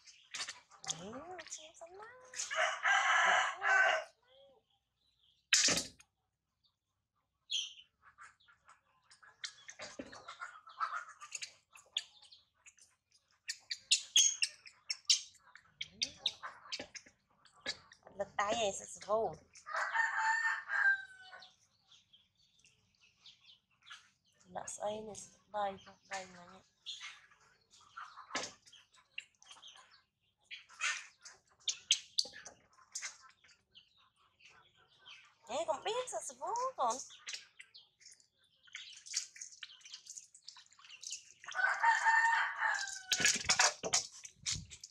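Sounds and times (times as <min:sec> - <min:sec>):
water splashing in a steel basin: 0:00.0 - 0:02.6, 0:36.5 - 0:44.9
baby monkey chirping and squeaking: 0:11.2 - 0:19.6, 0:30.6 - 0:33.7.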